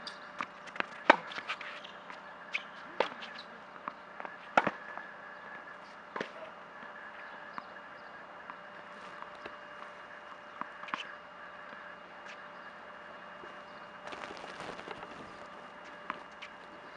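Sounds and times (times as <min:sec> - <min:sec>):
tennis ball bouncing on court: 0:03.0 - 0:04.9.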